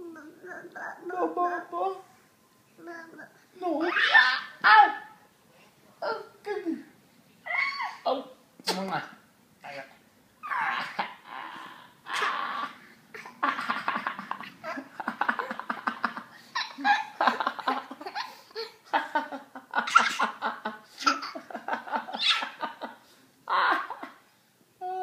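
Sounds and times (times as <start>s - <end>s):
baby giggling: 12.1s - 18.8s, 19.8s - 22.6s.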